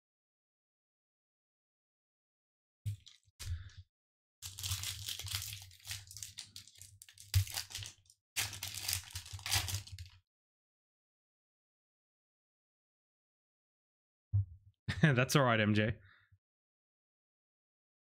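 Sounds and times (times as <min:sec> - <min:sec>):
foil wrapper crinkling and tearing: 0:04.4 - 0:10.2.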